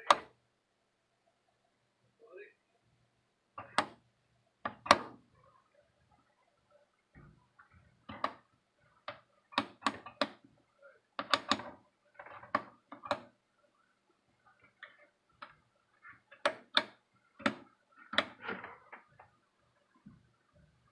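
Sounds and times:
rotary switch clicking: 11.2 - 11.7, 12.5 - 13.3, 16.4 - 18.4.

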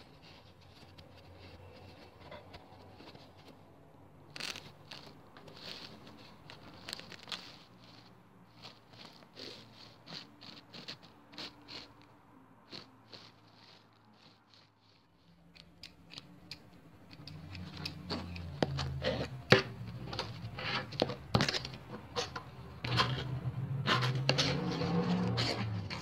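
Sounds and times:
scratchy scraping: 0.0 - 26.0
sharp dry clicks: 15.4 - 19.5.

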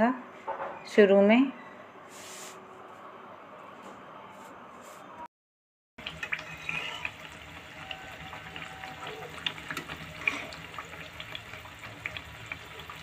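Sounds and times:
oil popping and crackling: 6.0 - 13.0
pastries sizzling in hot oil: 6.0 - 13.0.

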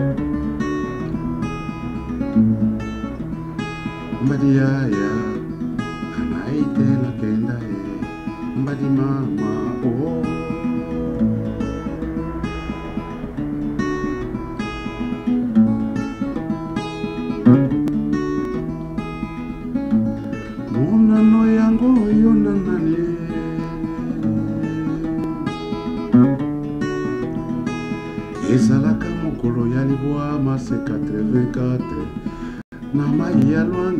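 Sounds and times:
acoustic guitar chords: 0.0 - 33.9
man singing: 4.1 - 13.4, 20.6 - 24.8, 28.1 - 33.9.

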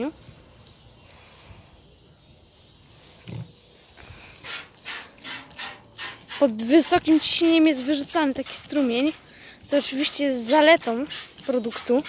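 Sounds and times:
spray bottle squirting: 4.4 - 12.0.

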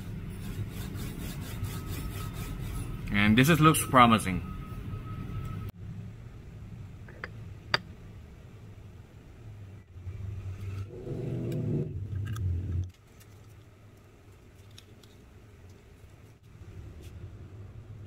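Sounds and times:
rubbing and scraping: 0.0 - 3.2.

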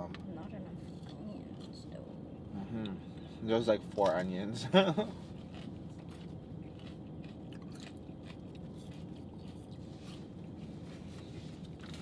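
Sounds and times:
low steady hum: 0.0 - 12.0
people chewing food: 2.4 - 12.0.

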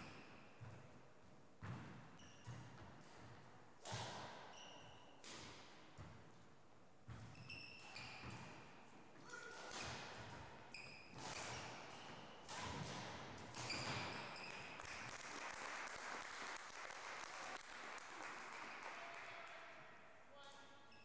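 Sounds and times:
racket striking shuttlecock: 2.4 - 4.5, 9.5 - 10.4, 11.1 - 14.3
shoes squeaking: 7.1 - 9.8, 13.6 - 14.8.

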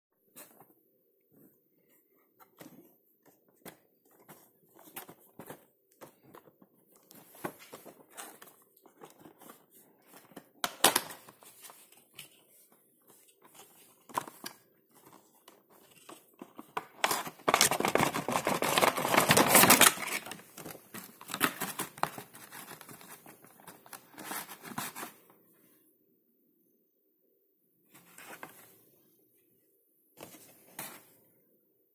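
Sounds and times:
plastic crinkling: 4.1 - 25.0.

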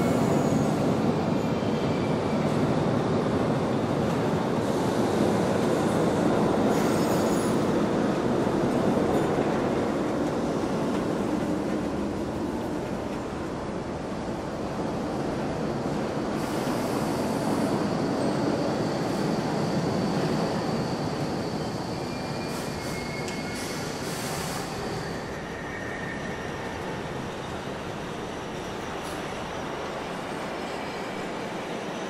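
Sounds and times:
subway train rumble: 0.0 - 32.0
high wheel squeal: 17.5 - 27.6.

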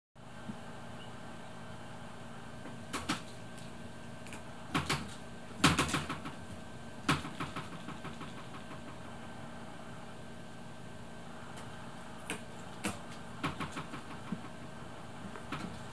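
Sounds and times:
steady background hum: 0.2 - 15.9.

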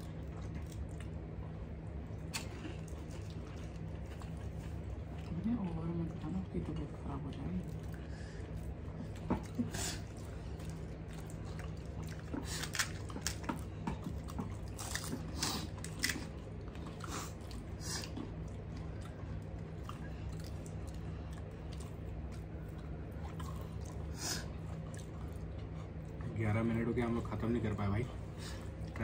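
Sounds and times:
chewing with wet squishes: 0.0 - 29.0.

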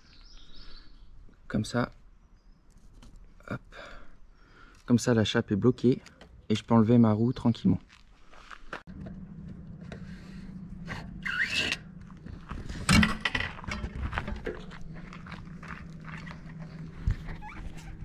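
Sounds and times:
steady low hum: 8.9 - 18.0.

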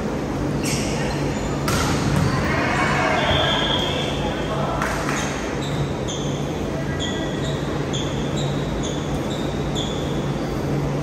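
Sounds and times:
low ventilation hum: 0.0 - 11.0
sneaker squeaks on hardwood floor: 5.6 - 6.4.

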